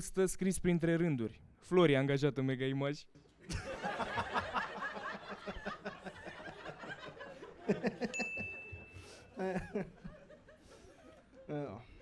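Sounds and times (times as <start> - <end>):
audience laughing: 3.4 - 11.5.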